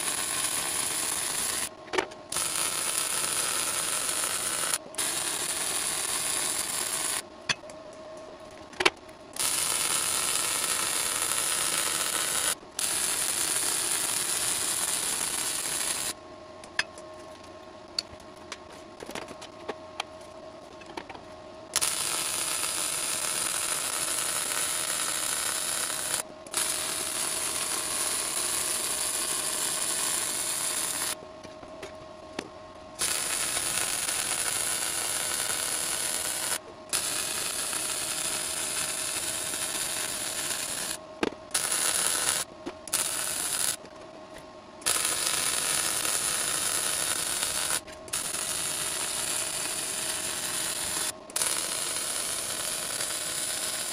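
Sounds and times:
arc welding hiss: 0:00.0 - 0:01.7, 0:02.3 - 0:07.2, 0:09.4 - 0:16.2, 0:21.8 - 0:31.2, 0:33.0 - 0:43.8, 0:44.8 - 0:53.9.

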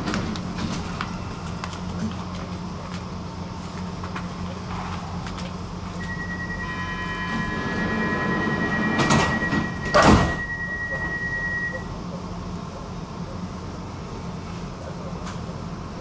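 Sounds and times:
train running hum: 0:00.0 - 0:16.0
steady high tone: 0:06.0 - 0:11.9
sliding doors thudding: 0:07.3 - 0:10.6.

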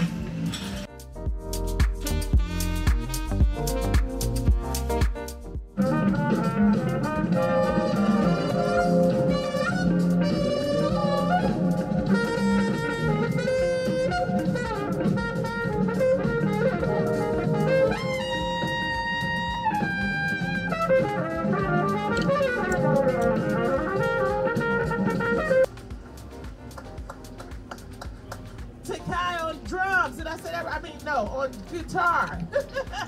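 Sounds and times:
live jazz band playing: 0:00.0 - 0:30.0
trumpets: 0:01.8 - 0:25.7.

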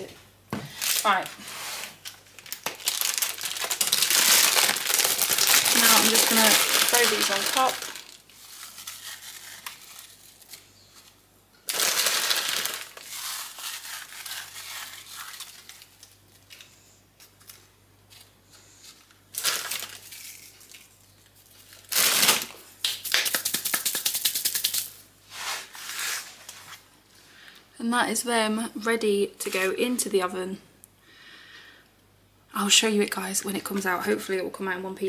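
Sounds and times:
plastic packet crinkling: 0:00.8 - 0:01.4, 0:02.0 - 0:18.3, 0:18.9 - 0:25.0
cookies crunching: 0:02.0 - 0:22.0.

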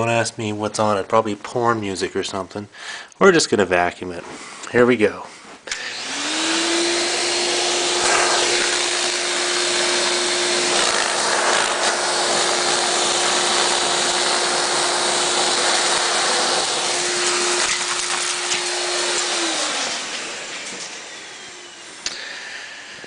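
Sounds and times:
vacuum cleaner running: 0:05.7 - 0:23.0.

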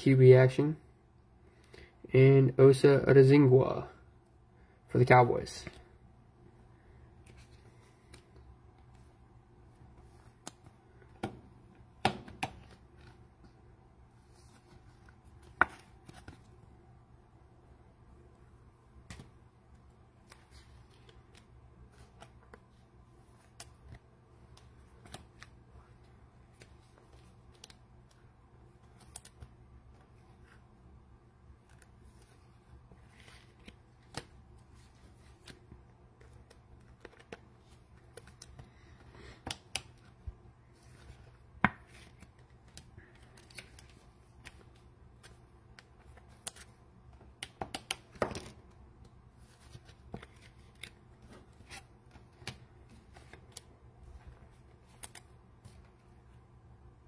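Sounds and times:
low room hum: 0:00.0 - 0:57.0
trading cards handled: 0:14.2 - 0:16.6, 0:19.0 - 0:30.7, 0:31.6 - 0:56.2.

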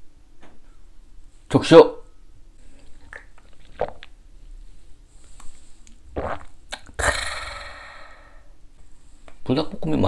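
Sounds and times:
man gasping raspy breath: 0:07.0 - 0:08.6.

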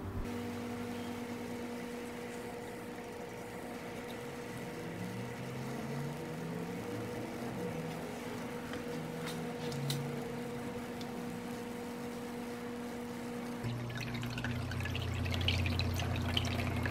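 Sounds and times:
water pump humming: 0:00.0 - 0:16.9
faint water sounds: 0:01.2 - 0:09.2, 0:13.6 - 0:16.9.

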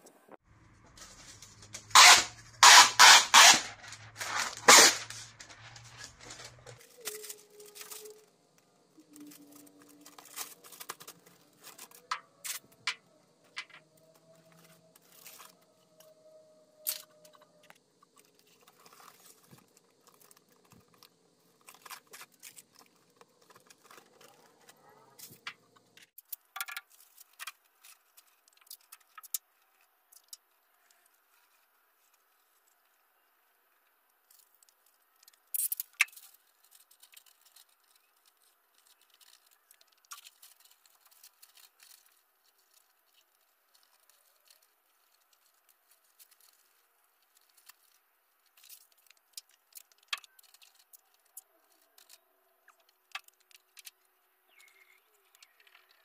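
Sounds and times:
paper and tape crinkling: 0:00.3 - 0:56.0
tape snapping: 0:01.6 - 0:05.5.

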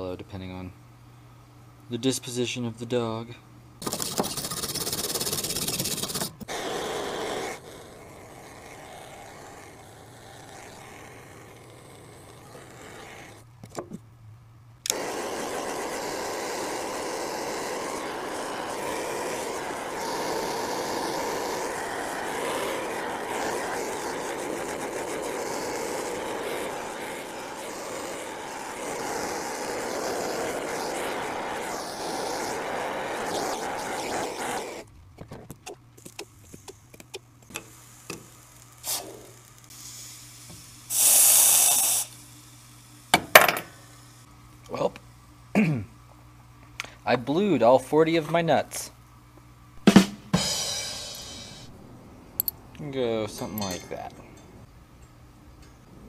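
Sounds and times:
faint workshop noise: 0:00.0 - 0:50.0, 0:50.9 - 0:56.0
gas torch hissing: 0:03.8 - 0:13.5, 0:14.8 - 0:34.9, 0:36.0 - 0:44.8, 0:49.8 - 0:54.0
gas torch igniting click: 0:14.8 - 0:34.9, 0:35.6 - 0:42.3.

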